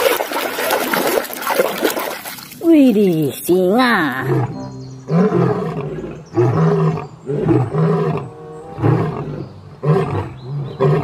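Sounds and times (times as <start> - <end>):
lion roaring: 4.2 - 11.0.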